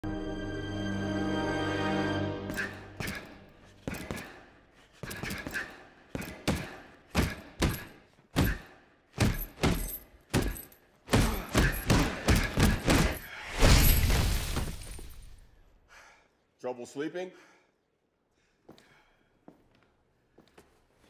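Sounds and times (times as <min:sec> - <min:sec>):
fists punching heavy bag: 0:05.0 - 0:13.3.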